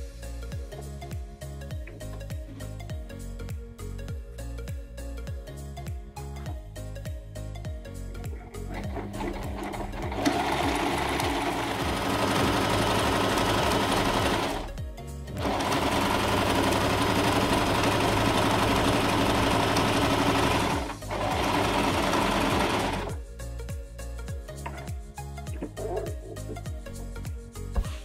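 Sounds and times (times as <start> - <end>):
sewing machine stitching: 8.7 - 14.8, 15.4 - 23.2.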